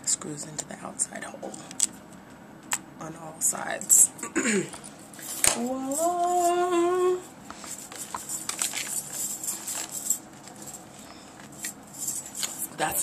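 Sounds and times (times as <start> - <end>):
woman singing out a word: 5.5 - 7.3
faint clicks and rustles: 7.2 - 13.0.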